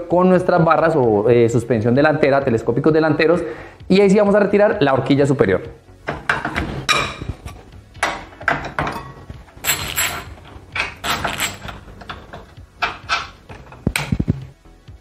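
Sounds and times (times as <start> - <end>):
metallic ratchet clicks and knocks: 8.0 - 14.3.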